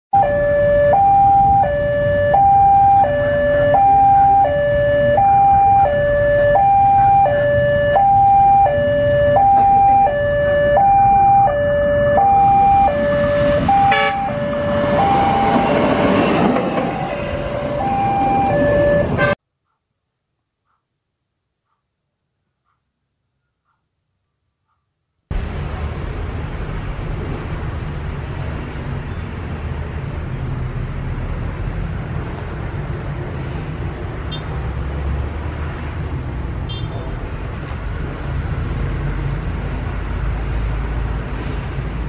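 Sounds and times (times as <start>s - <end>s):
level crossing two-tone alarm: 0.2s - 19.4s
rail car passing rumble: 11.4s - 19.4s, 25.3s - 42.0s.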